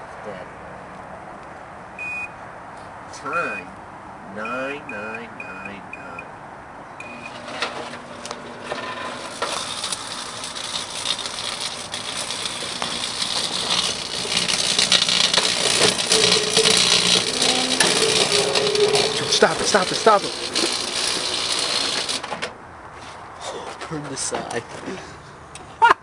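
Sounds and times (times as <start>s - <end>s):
microwave keypad beep: 2.0s - 2.3s, 7.0s - 7.4s
microwave humming: 7.0s - 22.5s
electrical arcing crackle: 8.6s - 22.4s.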